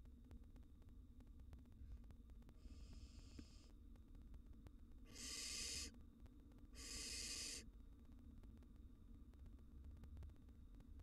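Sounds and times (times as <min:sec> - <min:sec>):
barn owl hissing: 0:05.1 - 0:05.9, 0:06.8 - 0:07.7.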